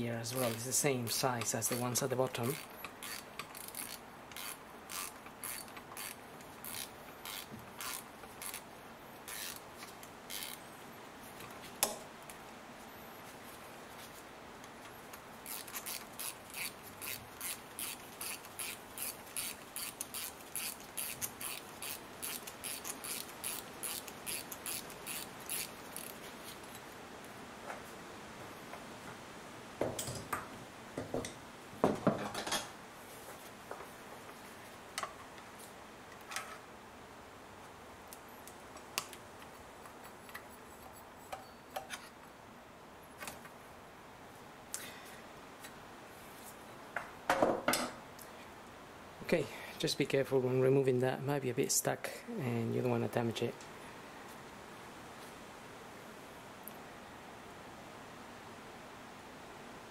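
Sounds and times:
ratchet wrench clicking: 2.4s - 8.6s, 9.3s - 9.6s, 10.3s - 10.6s, 15.5s - 26.2s.

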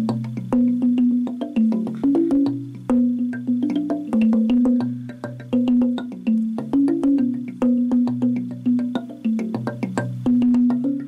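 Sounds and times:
wooden tongue drum notes: 0.0s - 11.0s.

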